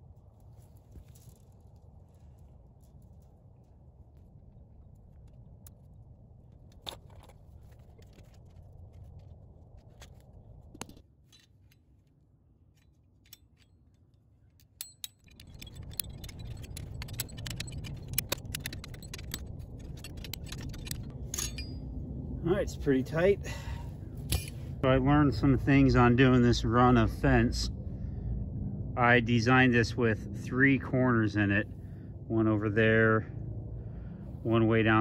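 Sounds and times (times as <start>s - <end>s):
wind rumble on microphone: 0.0s - 11.0s, 15.2s - 35.0s
ratchet rapid metallic clicking: 14.8s - 21.1s.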